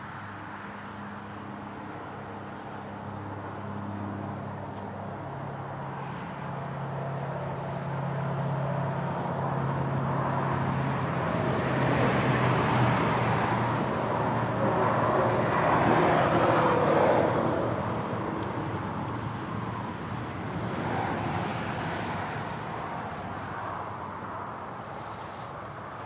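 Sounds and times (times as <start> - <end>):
motor vehicle passing: 19.7 - 26.0.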